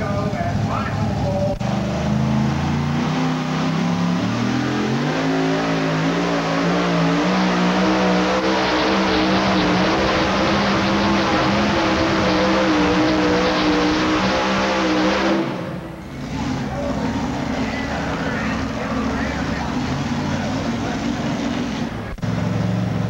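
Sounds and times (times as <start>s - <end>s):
supercharged engine revving: 0.0s - 23.0s.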